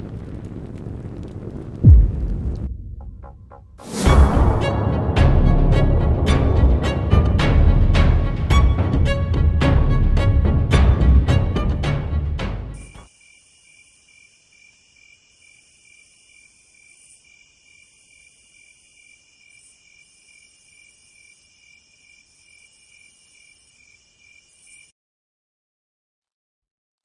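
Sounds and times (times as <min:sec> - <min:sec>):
crickets chirping: 0:13.0 - 0:24.9.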